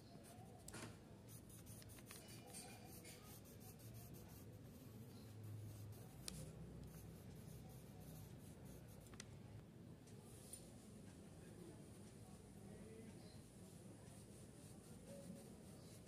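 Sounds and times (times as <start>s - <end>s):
pencil scratching on paper: 1.3s - 9.1s.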